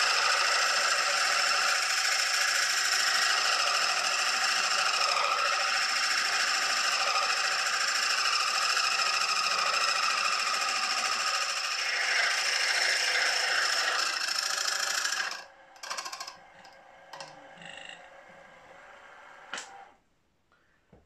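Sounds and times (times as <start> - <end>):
milling machine rattling: 0.0 - 16.4.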